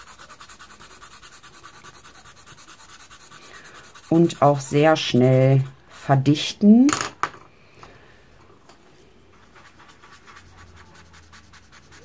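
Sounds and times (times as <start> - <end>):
drawing stick scratching paper: 0.0 - 6.3, 9.5 - 12.0.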